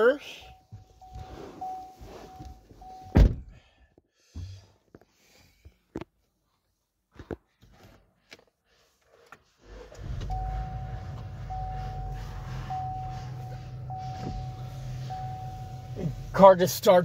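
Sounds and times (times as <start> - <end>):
car engine starting and idling: 9.4 - 17.0
dashboard chime: 10.3 - 16.6.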